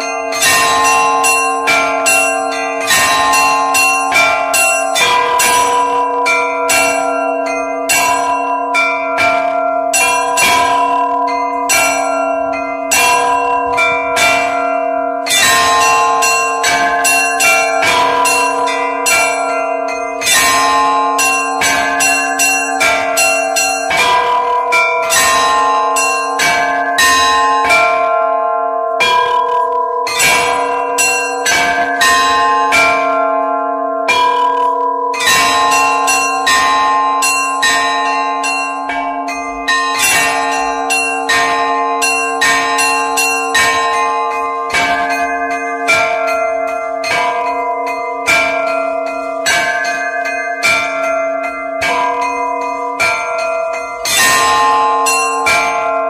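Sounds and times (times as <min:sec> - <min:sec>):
church bells ringing: 0:00.0 - 0:56.0
lingering hum of bells: 0:00.0 - 0:56.0.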